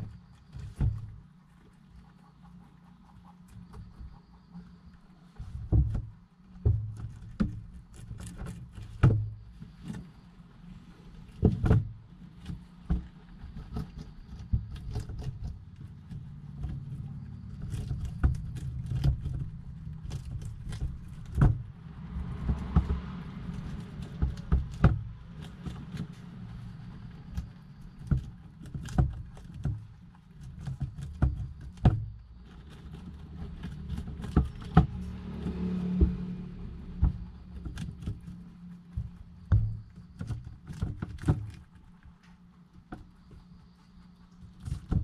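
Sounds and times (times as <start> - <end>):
low steady hum: 0.0 - 45.0
rabbits shuffling and nibbling: 0.0 - 45.0.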